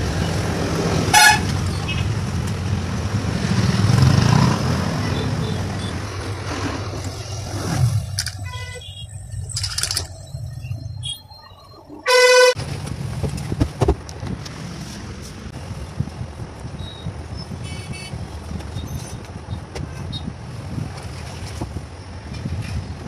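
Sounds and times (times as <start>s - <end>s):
street traffic: 0.0s - 23.0s
loud vehicle horn blaring: 1.1s - 1.5s, 12.1s - 12.6s.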